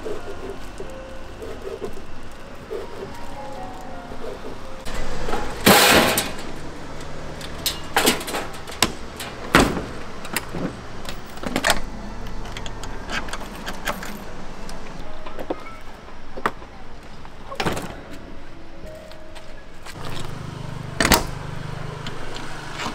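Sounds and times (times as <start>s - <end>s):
metal panels clanking and rattling: 4.2s - 15.6s.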